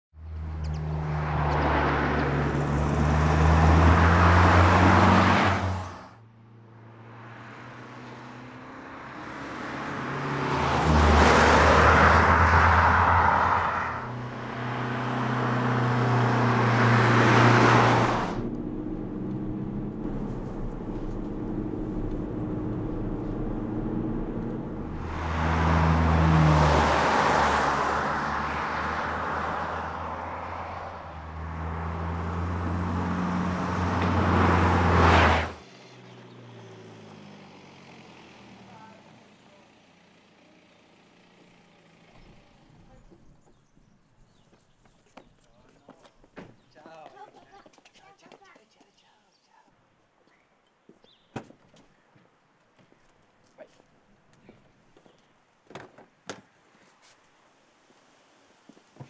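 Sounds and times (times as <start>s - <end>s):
car driving by: 0.2s - 37.8s.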